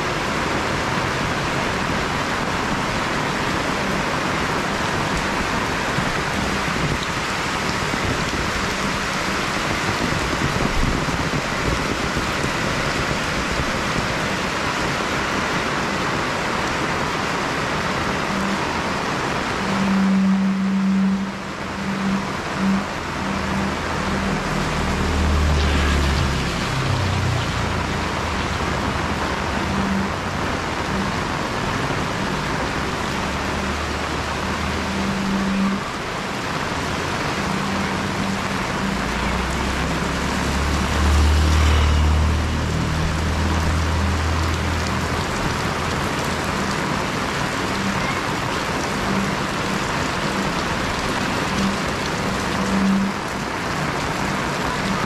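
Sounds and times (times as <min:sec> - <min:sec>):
heavy rain pouring: 0:00.0 - 0:55.0
low electronic buzz: 0:18.2 - 0:45.0.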